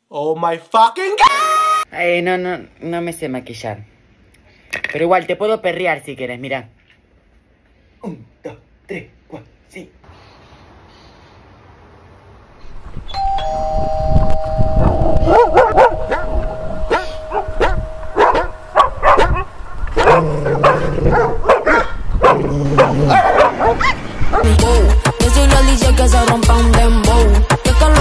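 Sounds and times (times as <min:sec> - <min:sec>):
two-note doorbell chime: 0:13.2 - 0:19.9
dogs barking: 0:15.2 - 0:24.5.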